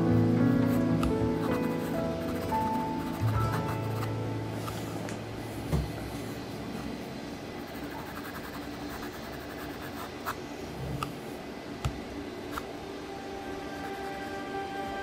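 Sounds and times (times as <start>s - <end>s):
pencil scratching on paper: 1.4s - 4.1s, 7.6s - 10.4s.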